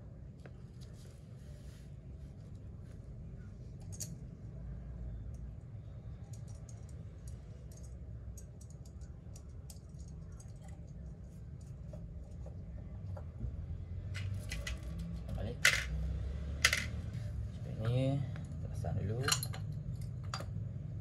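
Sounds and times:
low background hum: 0:00.0 - 0:21.0
small metal parts clicking: 0:03.8 - 0:04.2, 0:06.2 - 0:11.0.

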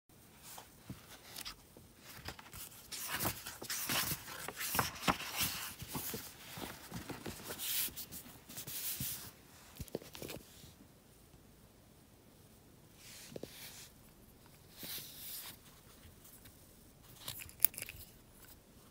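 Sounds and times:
paper pages rustling: 0:00.4 - 0:10.6.

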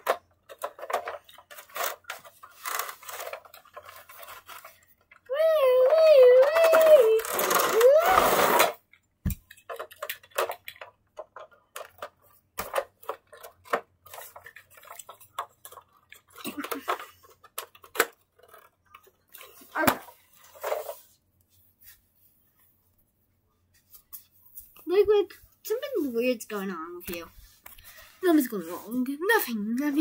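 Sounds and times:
small clicks taps and rustles: 0:00.0 - 0:07.7, 0:08.8 - 0:19.6, 0:23.7 - 0:28.4.

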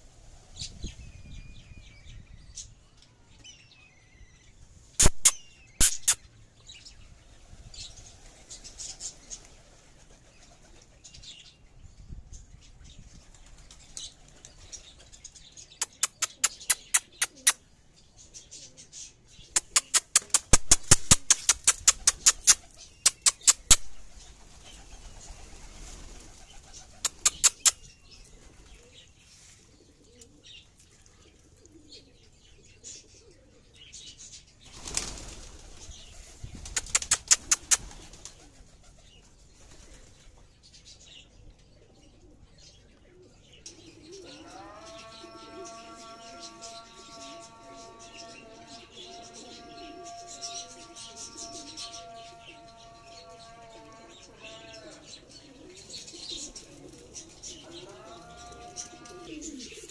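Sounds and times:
faint pigeon cooing: 0:12.7 - 0:59.9
pigeon wings clapping: 0:19.6 - 0:27.8, 0:34.7 - 0:35.8, 0:36.6 - 0:38.7.

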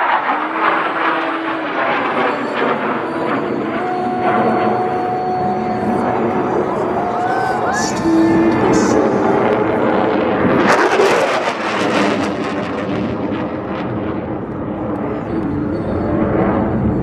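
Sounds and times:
fighter jets roaring: 0:00.0 - 0:17.0.

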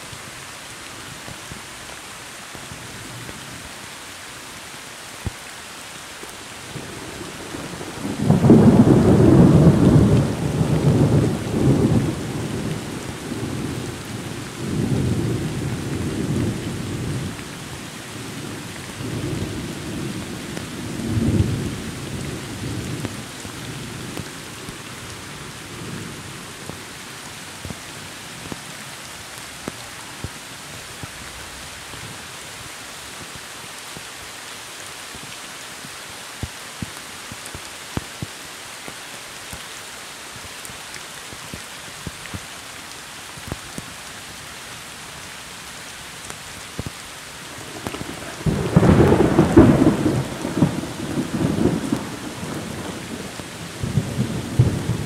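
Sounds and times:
rain falling on leaves: 0:00.0 - 0:55.0
thunder rolling: 0:47.6 - 0:53.2.

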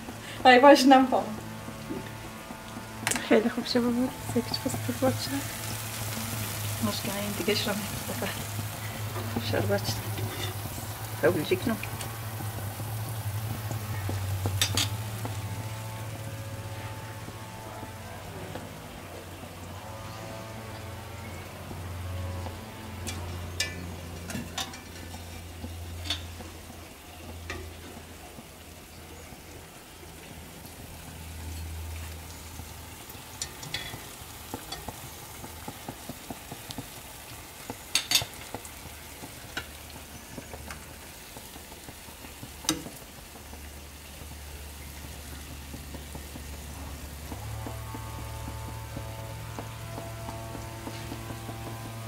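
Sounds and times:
batter sizzling in hot oil: 0:00.0 - 0:52.0
metal skimmer clicking on pan: 0:14.6 - 0:15.0, 0:23.1 - 0:25.2, 0:26.0 - 0:26.4.

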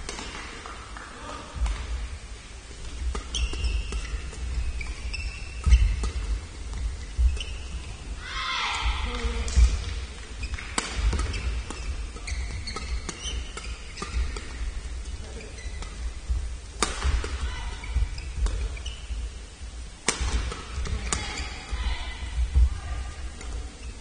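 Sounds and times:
rackets hitting shuttlecock: 0:00.0 - 0:01.0, 0:02.8 - 0:06.8, 0:09.1 - 0:14.7, 0:16.7 - 0:18.8, 0:20.0 - 0:21.4
low hall rumble: 0:00.0 - 0:13.1, 0:14.1 - 0:24.0
shoes squeaking on court floor: 0:02.8 - 0:08.2, 0:09.1 - 0:21.8, 0:23.4 - 0:24.0.

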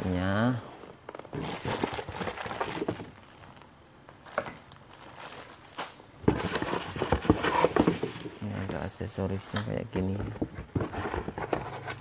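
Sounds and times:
plastic packaging crinkling: 0:01.1 - 0:09.0.

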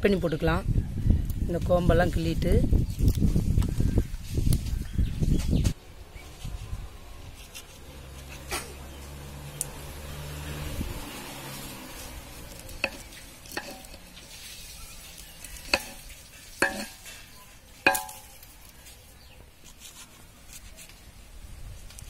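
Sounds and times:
knife blade clicking on metal pot: 0:15.7 - 0:17.1.

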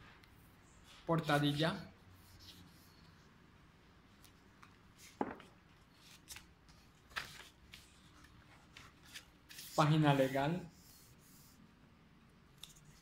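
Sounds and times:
paper rustling: 0:06.0 - 0:10.4.

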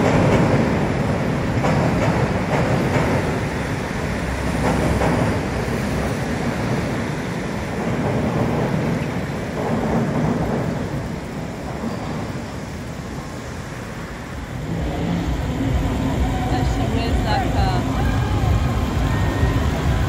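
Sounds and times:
train rumbling across steel bridge: 0:00.0 - 0:20.0.

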